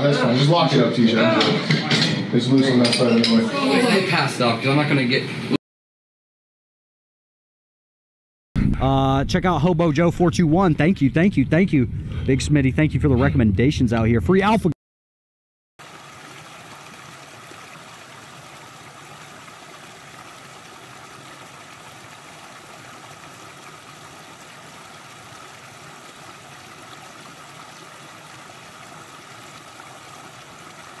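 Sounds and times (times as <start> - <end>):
creek running over rocks: 15.8 - 31.0.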